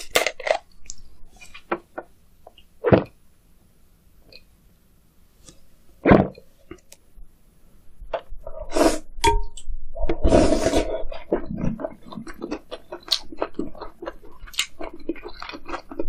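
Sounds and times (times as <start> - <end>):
person eating mouth sounds: 10.0 - 16.0.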